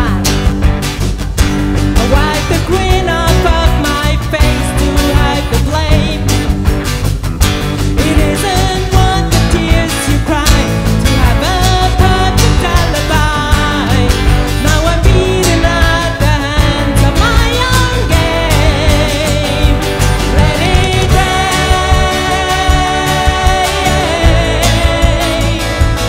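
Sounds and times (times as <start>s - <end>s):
live rock band playing: 0.0s - 26.0s
people singing: 8.0s - 26.0s.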